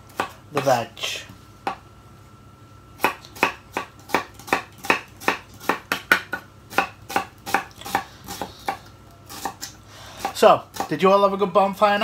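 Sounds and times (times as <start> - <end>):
knife chopping on wooden board: 0.1 - 0.8, 3.0 - 11.0.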